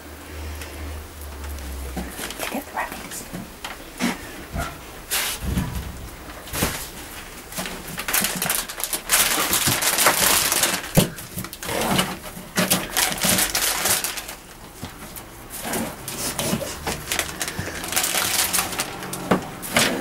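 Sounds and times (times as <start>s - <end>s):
hay rustling and crunching: 3.8s - 19.7s.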